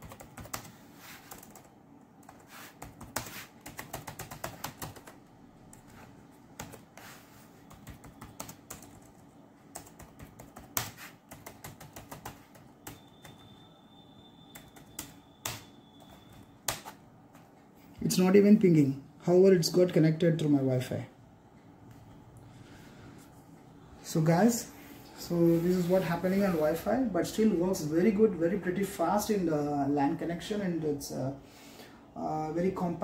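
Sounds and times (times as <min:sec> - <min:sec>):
laptop keyboard typing: 0:00.0 - 0:17.6.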